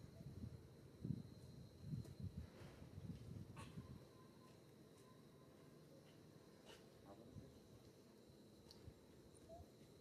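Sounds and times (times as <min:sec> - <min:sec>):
faint background hiss: 0:00.0 - 0:10.0
faint click: 0:08.6 - 0:08.9.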